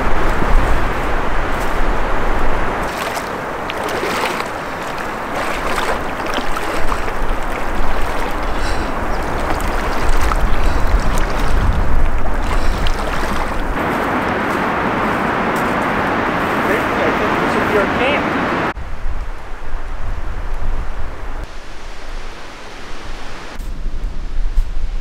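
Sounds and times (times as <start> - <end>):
strong wind through pine trees: 0.0 - 25.0
wind buffeting microphone: 0.0 - 25.0.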